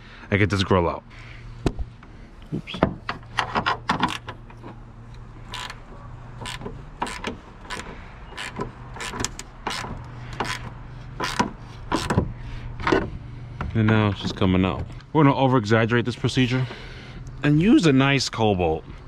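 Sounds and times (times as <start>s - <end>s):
wrench clicking on metal: 5.5s - 5.8s, 6.4s - 12.2s.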